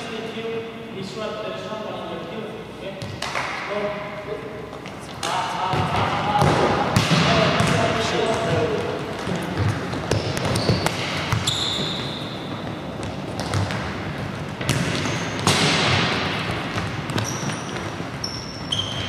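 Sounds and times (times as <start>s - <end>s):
balls kicked and bouncing: 4.7s - 19.0s
shoes squeaking on court: 7.6s - 15.6s, 16.3s - 19.0s.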